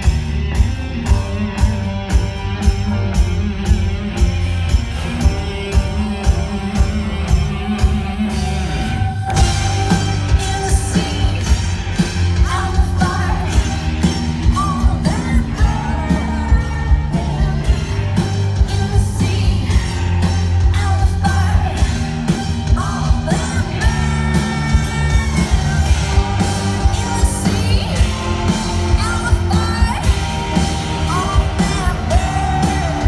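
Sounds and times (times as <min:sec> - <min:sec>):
heavy bass: 0:00.0 - 0:33.0
live rock band playing: 0:00.0 - 0:33.0
steady drum beat: 0:00.0 - 0:33.0
woman singing and yelling: 0:22.8 - 0:30.2, 0:31.1 - 0:33.0.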